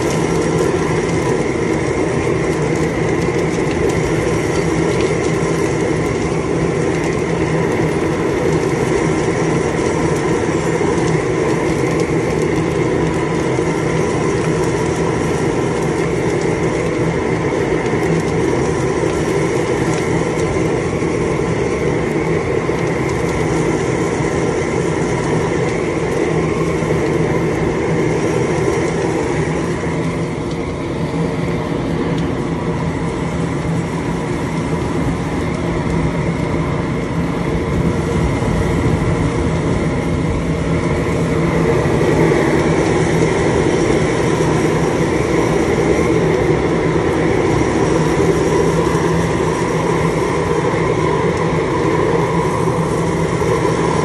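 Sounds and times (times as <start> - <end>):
propane burners roaring: 0.0 - 54.0.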